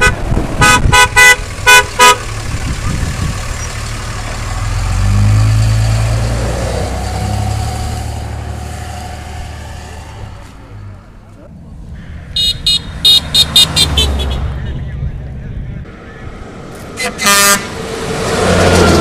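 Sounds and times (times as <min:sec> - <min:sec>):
vehicle horn toots: 0:00.0 - 0:02.3, 0:12.3 - 0:15.0, 0:17.0 - 0:17.7
pickup truck passing: 0:00.0 - 0:19.0.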